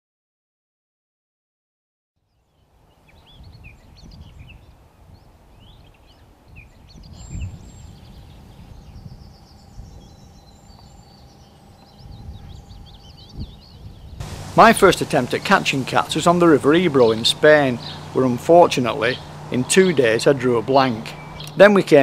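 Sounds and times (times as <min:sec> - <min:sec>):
small birds chirping: 0:02.2 - 0:22.0
faint steady hum: 0:14.2 - 0:22.0.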